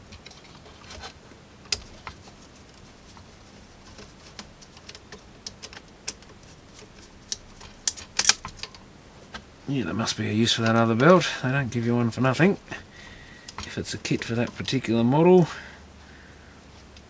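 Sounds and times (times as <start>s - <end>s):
screwdriver and small parts clicking: 3.9s - 8.8s.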